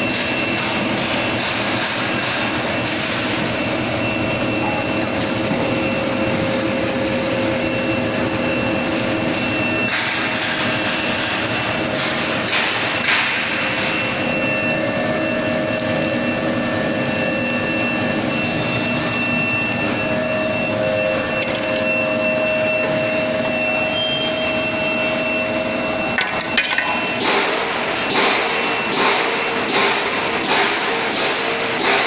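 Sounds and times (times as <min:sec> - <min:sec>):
machine drone with whining tones: 0:00.0 - 0:32.0.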